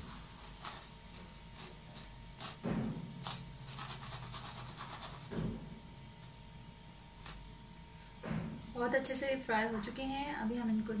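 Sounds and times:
food sizzling in hot oil: 0:00.0 - 0:03.6.

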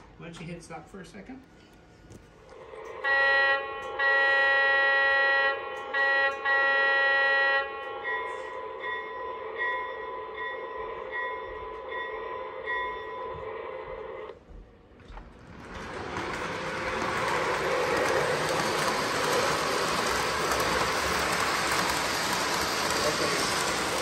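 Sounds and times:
model locomotive horn blasts: 0:02.9 - 0:08.6
locomotive bell ringing: 0:07.6 - 0:14.2.

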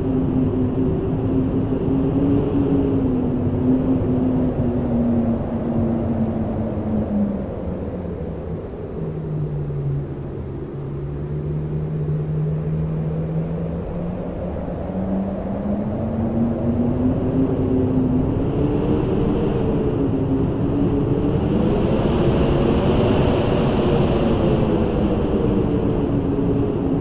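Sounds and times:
howling wind: 0:00.0 - 0:27.0.

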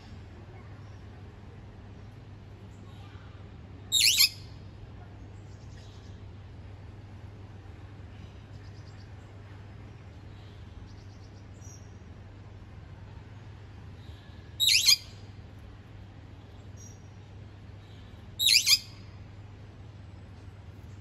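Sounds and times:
steady low hum: 0:00.0 - 0:21.0
faint high bird chirps: 0:03.9 - 0:04.6, 0:14.0 - 0:15.2, 0:18.4 - 0:19.0
bird giving loud short calls: 0:14.6 - 0:15.0, 0:18.4 - 0:18.8.

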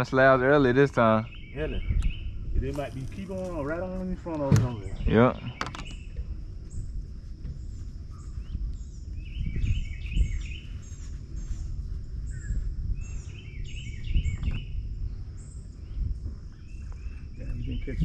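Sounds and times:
low rumble: 0:00.0 - 0:18.0
songbirds chirping: 0:00.0 - 0:18.0.

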